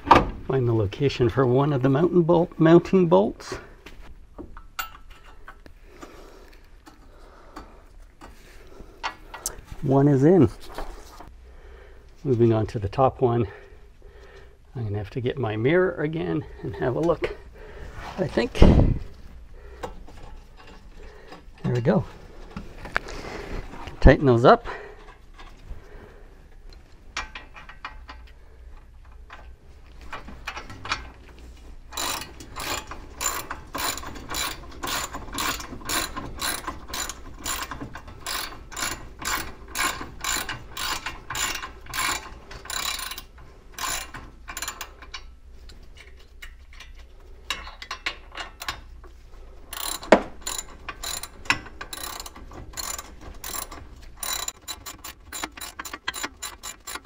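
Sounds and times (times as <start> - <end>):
socket ratchet clicking: 32.0 - 45.2, 49.7 - 57.0.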